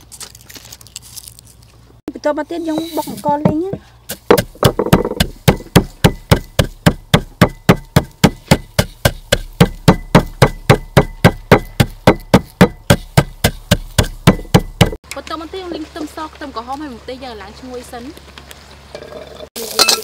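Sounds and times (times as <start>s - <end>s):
pestle pounding grains in mortar: 2.7s - 15.0s.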